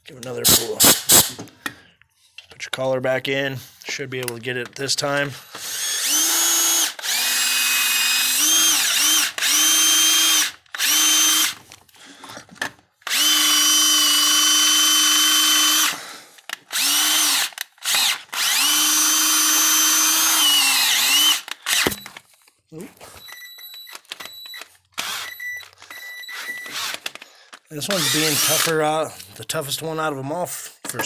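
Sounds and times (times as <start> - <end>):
cordless drill boring into metal: 5.5 - 11.6, 13.0 - 16.0, 16.6 - 22.1, 25.0 - 25.6, 26.2 - 27.2, 27.8 - 28.9.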